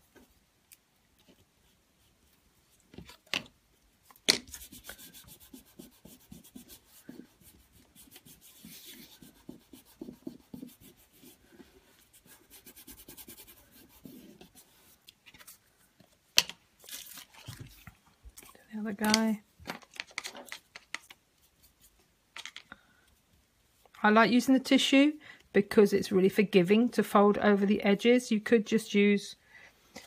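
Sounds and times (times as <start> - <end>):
fingers rubbing tissue paper: 4.5 - 14.7.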